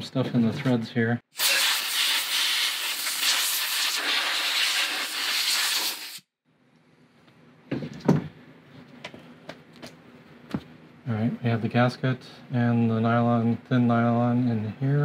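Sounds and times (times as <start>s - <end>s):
compressed air hissing: 1.4s - 6.3s.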